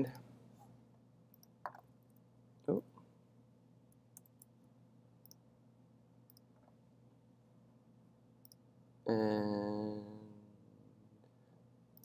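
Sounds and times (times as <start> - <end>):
low room hum: 0.0 - 12.0
computer mouse clicks: 4.0 - 4.6, 6.3 - 6.7.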